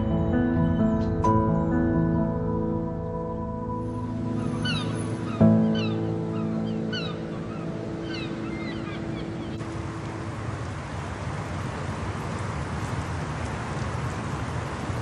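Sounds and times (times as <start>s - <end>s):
open-air ambience hiss: 0.0s - 15.0s
birds chirping: 3.8s - 10.0s.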